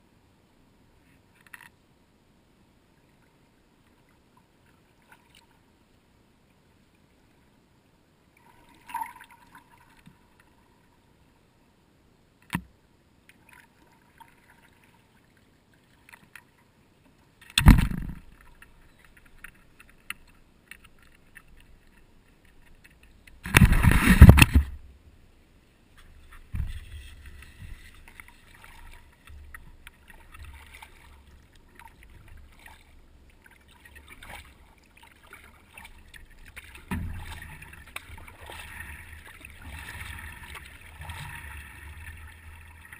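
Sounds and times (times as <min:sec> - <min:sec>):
water sloshing along hull: 0:02.9 - 0:07.6, 0:08.2 - 0:11.4, 0:12.6 - 0:42.9.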